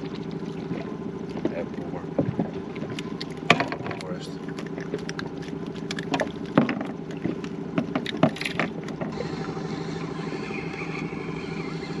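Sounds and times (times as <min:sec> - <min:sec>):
steady low hum: 0:00.0 - 0:12.0
fishing tackle clicks and knocks: 0:02.2 - 0:09.1.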